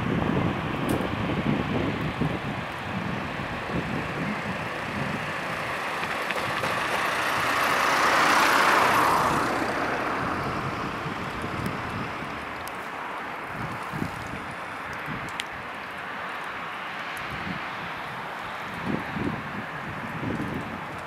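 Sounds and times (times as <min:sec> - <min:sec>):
vehicle passing: 0:02.8 - 0:15.1.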